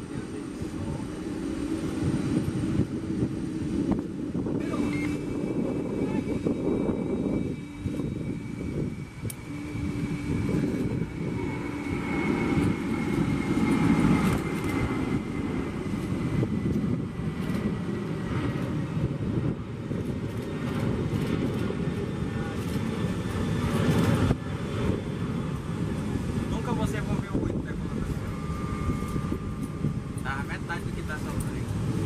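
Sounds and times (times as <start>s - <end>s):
jet engine high whine: 0.0s - 32.0s
jet engines rumbling: 0.0s - 32.0s.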